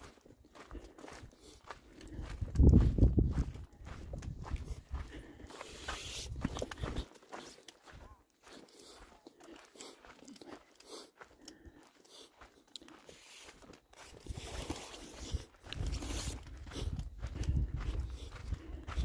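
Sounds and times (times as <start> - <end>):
footsteps crunching on gravel: 0.0 - 19.0.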